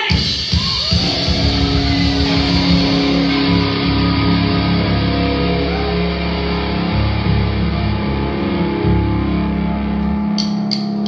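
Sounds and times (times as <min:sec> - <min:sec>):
live rock band playing: 0:00.0 - 0:11.0.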